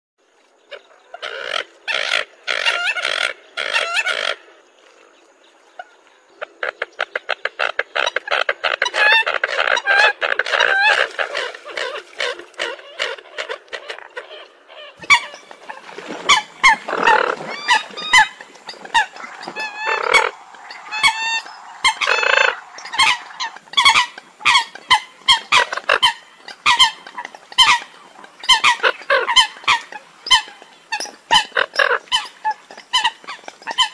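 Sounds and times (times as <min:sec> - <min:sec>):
coots honking calls: 0:15.0 - 0:33.9.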